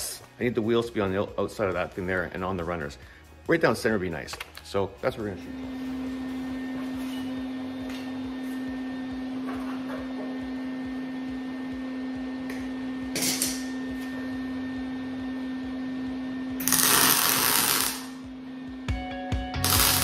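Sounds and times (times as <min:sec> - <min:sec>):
steady hum: 0:05.3 - 0:20.0
arc welding crackle: 0:16.6 - 0:18.3, 0:19.6 - 0:20.0.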